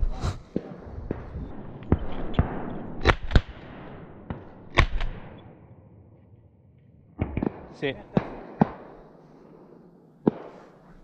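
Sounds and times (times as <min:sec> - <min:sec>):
gunshot echo: 0:00.3 - 0:05.6, 0:07.2 - 0:11.0
fainter sharp cracks: 0:00.4 - 0:11.0
loud shotgun shots: 0:00.6 - 0:05.4, 0:07.2 - 0:10.8.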